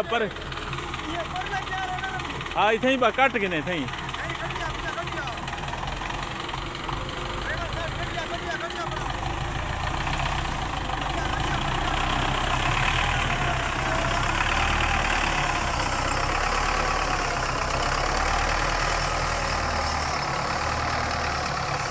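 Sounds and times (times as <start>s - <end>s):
tractor diesel engine running: 0.0s - 21.9s.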